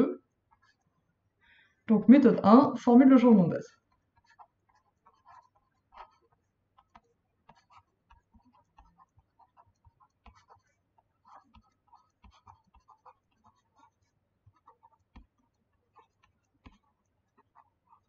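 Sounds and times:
stylus tapping and scratching on screen: 0:00.0 - 0:18.0.

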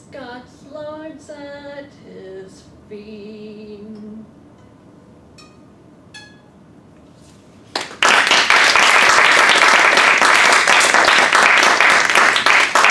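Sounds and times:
plucked zither strings: 0:04.6 - 0:06.6
audience applauding: 0:07.7 - 0:12.9.

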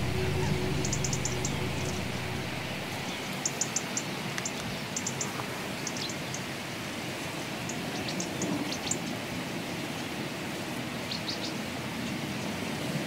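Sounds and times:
low sustained music notes: 0:00.0 - 0:03.3.

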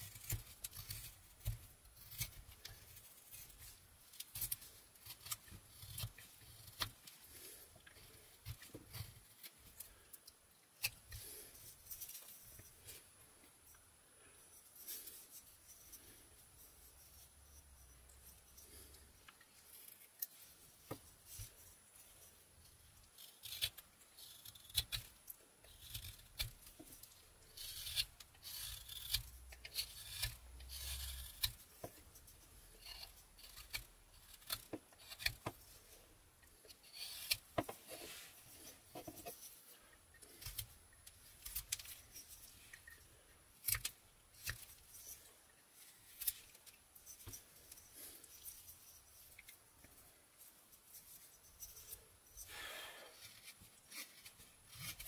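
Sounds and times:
knife scraping wood: 0:00.0 - 0:10.0, 0:23.1 - 0:49.5, 0:50.8 - 0:55.0.

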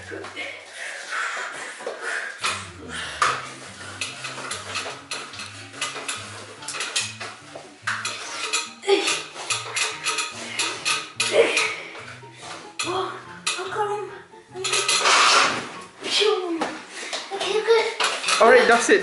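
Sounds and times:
metal stepladder clanking: 0:02.4 - 0:13.8, 0:14.6 - 0:15.8, 0:17.5 - 0:18.9.

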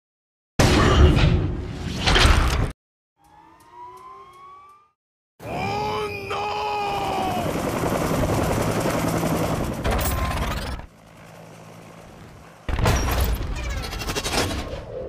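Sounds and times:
helicopter rotor and engine: 0:05.8 - 0:14.7.

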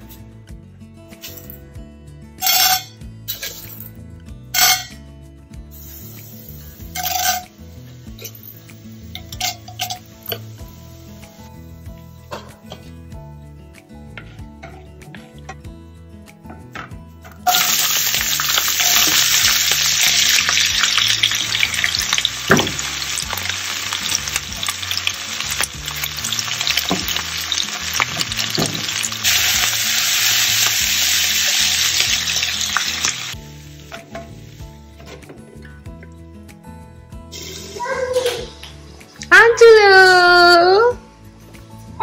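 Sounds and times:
soft background music: 0:00.0 - 0:42.0
oil sizzling in a pan: 0:04.5 - 0:05.0, 0:05.6 - 0:12.9, 0:17.4 - 0:35.1, 0:37.3 - 0:38.4.

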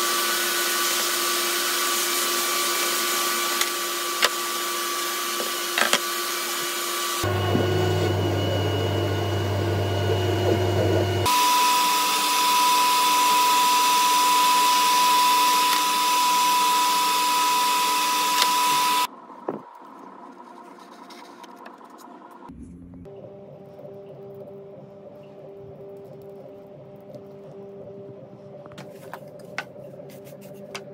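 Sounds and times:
power tool whining: 0:00.0 - 0:19.1
router spindle cutting wood: 0:03.4 - 0:19.1.

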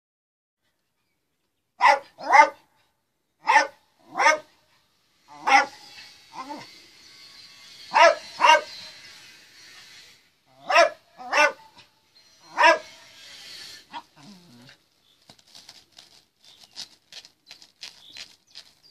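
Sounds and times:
dog barking: 0:01.8 - 0:02.7, 0:03.4 - 0:04.5, 0:05.4 - 0:05.8, 0:07.9 - 0:08.8, 0:10.6 - 0:11.8, 0:12.5 - 0:13.0.

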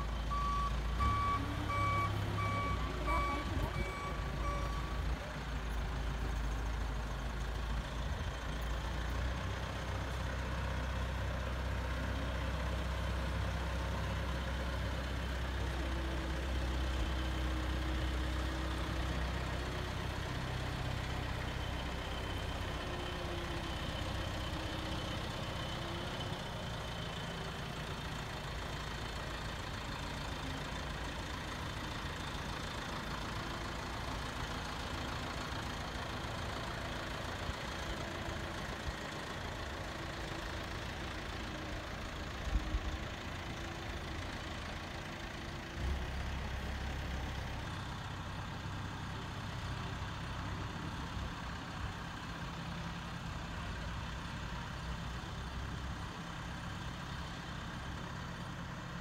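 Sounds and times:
reversing alarm beeping: 0:00.0 - 0:05.2
large vehicle engine rumbling: 0:00.0 - 0:59.0.

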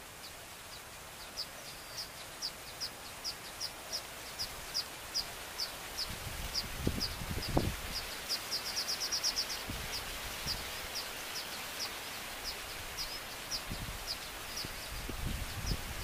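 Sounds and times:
bird chirping: 0:00.0 - 0:16.0
steady outdoor hiss: 0:00.0 - 0:16.0.

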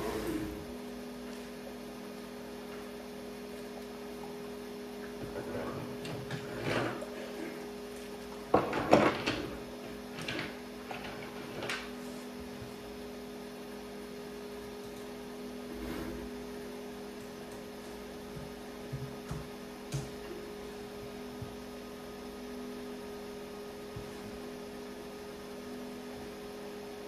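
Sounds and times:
two-tone electrical hum: 0:00.0 - 0:27.0.

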